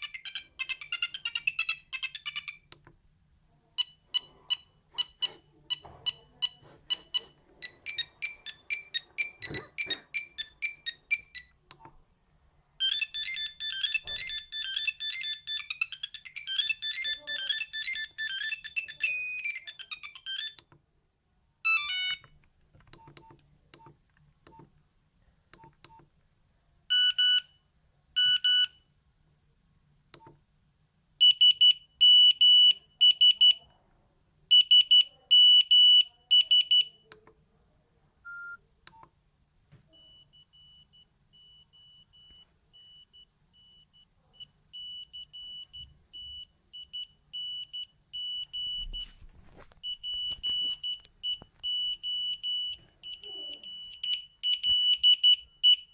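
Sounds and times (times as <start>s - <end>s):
mobile phone ringtone beeps: 0.0s - 2.7s, 3.8s - 11.5s, 12.8s - 20.6s, 21.6s - 22.3s, 26.9s - 27.5s, 28.2s - 28.8s, 38.3s - 38.6s, 39.9s - 49.2s, 49.8s - 55.9s.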